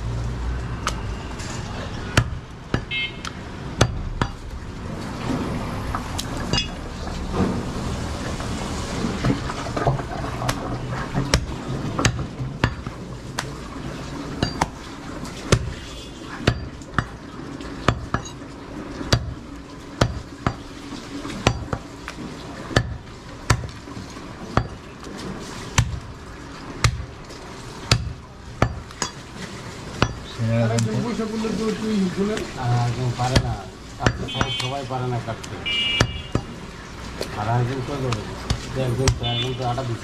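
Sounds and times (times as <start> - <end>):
steady background noise: 0.0 - 40.0
cleaver chopping meat on wood: 2.1 - 4.4, 10.4 - 13.5, 22.8 - 23.8, 25.8 - 26.0, 26.8 - 27.1, 27.9 - 29.1, 33.2 - 34.7, 35.9 - 36.6, 38.1 - 39.4.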